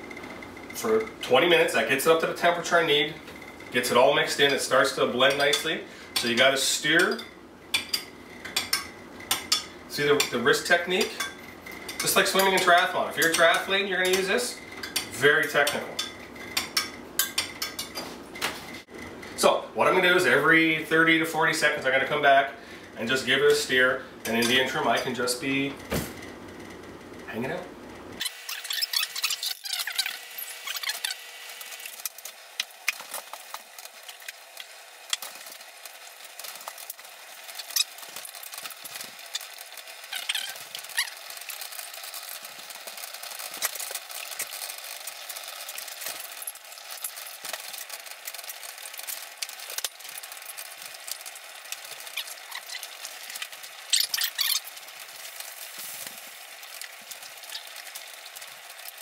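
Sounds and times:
saucepans boiling and bubbling: 0.0 - 59.0.

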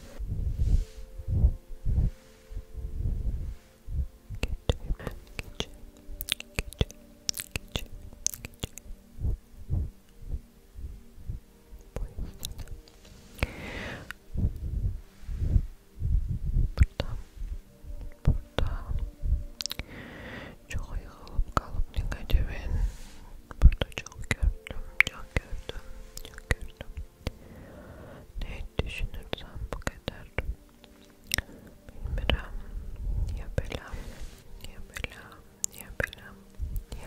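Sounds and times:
breathy blow into microphone: 0.0 - 4.1, 13.0 - 17.6
soft low thumps from hands: 0.1 - 5.9, 8.9 - 19.6
sharp mouth clicks: 4.3 - 9.0, 12.0 - 13.5, 19.5 - 19.9, 29.8 - 32.5.

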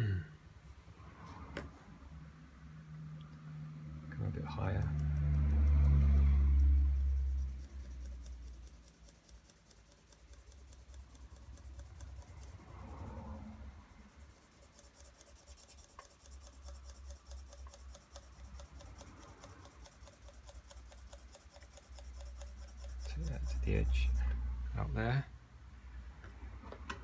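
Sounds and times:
pencil shading on paper: 4.5 - 24.4.

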